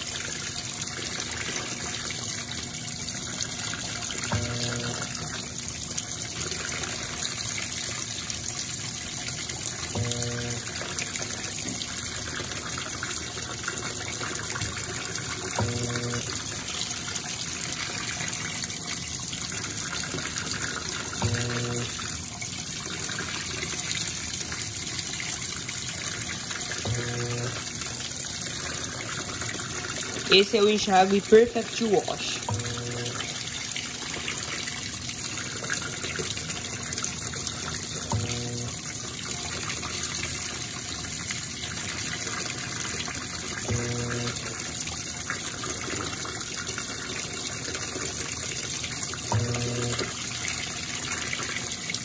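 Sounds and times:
water pouring onto wet laundry: 0:00.0 - 0:52.0
short low machine hum: 0:04.3 - 0:05.2, 0:10.0 - 0:10.8, 0:15.6 - 0:16.4, 0:21.2 - 0:22.0, 0:26.8 - 0:27.7, 0:32.4 - 0:33.4, 0:38.0 - 0:38.8, 0:43.7 - 0:44.5, 0:49.3 - 0:50.1.

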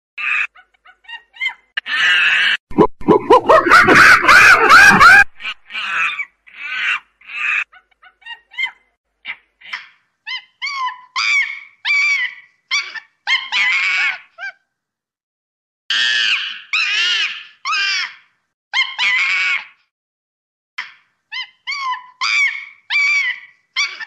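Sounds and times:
chimpanzee calling: 0:20.8 - 0:24.0.

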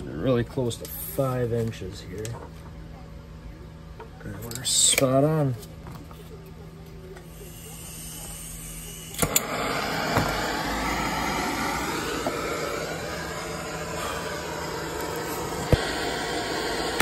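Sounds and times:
gas torch flame hissing: 0:07.2 - 0:17.0
gas torch igniter clicks: 0:09.1 - 0:13.1, 0:14.4 - 0:17.0.

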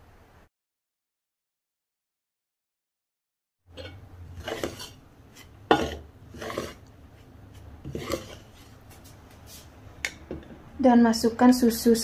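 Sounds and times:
metal spoon scraping ceramic bowl: 0:03.7 - 0:06.9, 0:07.8 - 0:08.6.

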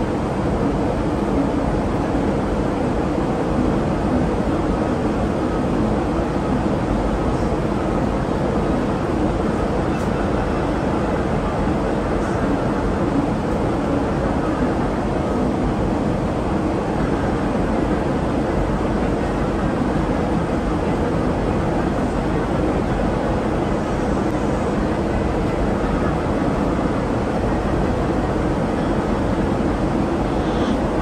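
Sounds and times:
airliner cabin engine rumble: 0:00.0 - 0:31.0.

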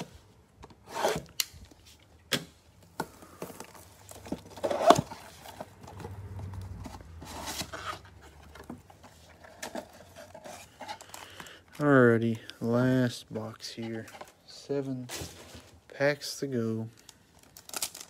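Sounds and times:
cardboard box sliding and rustling: 0:04.4 - 0:10.9.

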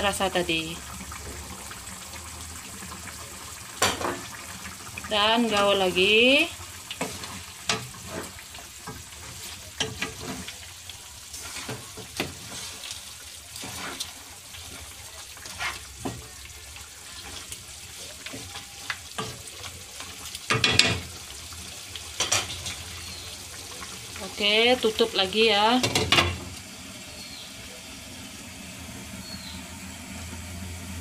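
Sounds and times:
pan sizzling: 0:00.0 - 0:31.0
spatula scraping a pan: 0:06.9 - 0:21.2, 0:22.2 - 0:23.1.

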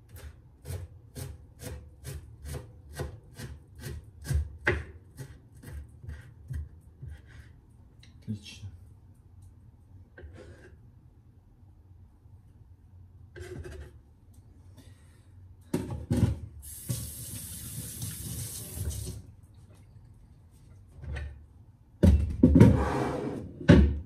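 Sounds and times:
kitchen tap running: 0:16.6 - 0:19.3.

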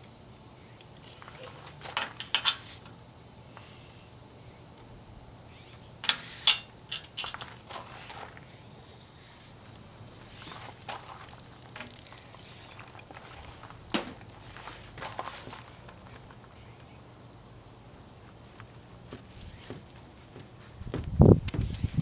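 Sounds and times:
garden hose rustling: 0:00.8 - 0:04.2, 0:05.7 - 0:22.0
air hissing from valve: 0:02.5 - 0:02.9, 0:06.0 - 0:06.7, 0:08.4 - 0:09.6.

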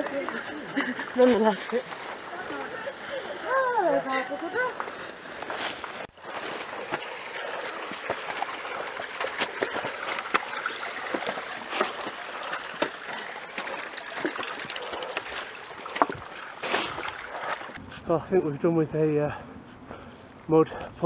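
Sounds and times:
stream trickling over rocks: 0:00.0 - 0:17.8
footsteps on wet stone steps: 0:00.0 - 0:17.9.

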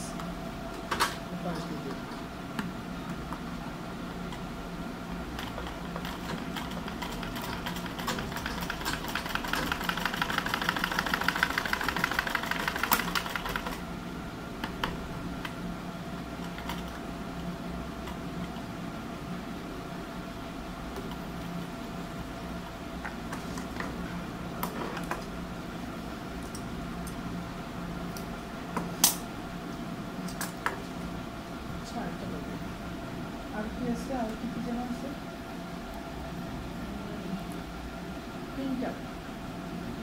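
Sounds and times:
sewing machine clattering: 0:05.4 - 0:13.8.

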